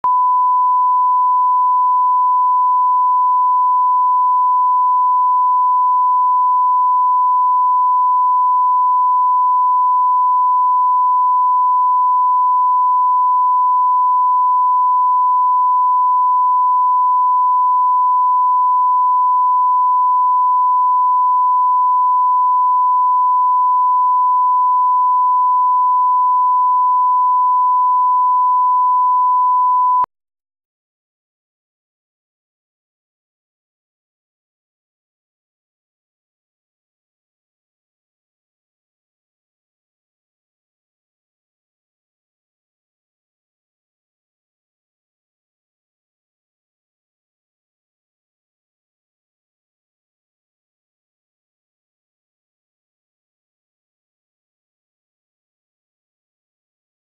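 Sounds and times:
steady sine tone: 0.0s - 30.1s.

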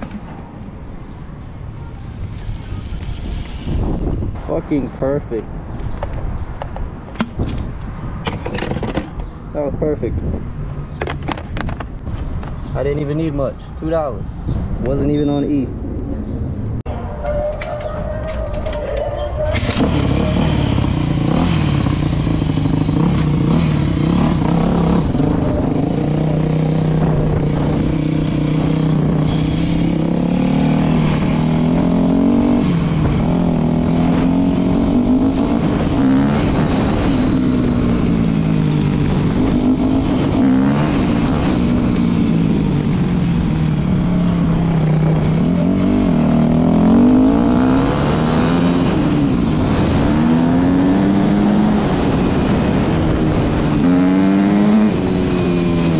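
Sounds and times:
dirt bike engine revving: 19.6s - 42.8s, 44.3s - 55.9s.

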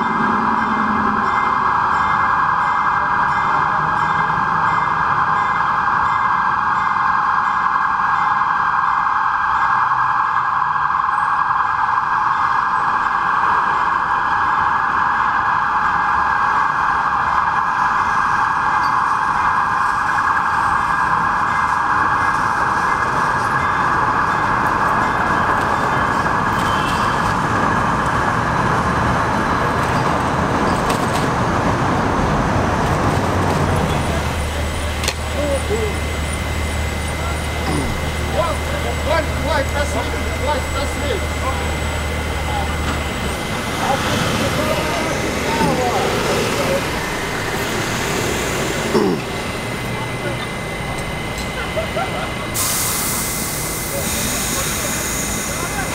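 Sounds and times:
steady vehicle drone: 11.9s - 55.9s.

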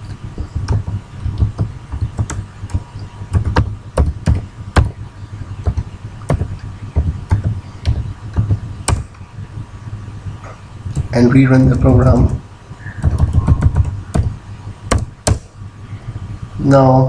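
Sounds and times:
keyboard typing: 0.0s - 5.0s, 5.6s - 9.2s, 13.0s - 15.4s.

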